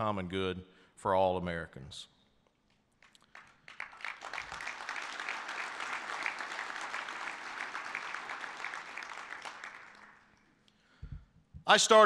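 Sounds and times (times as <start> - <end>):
audience applause: 3.3 - 10.4.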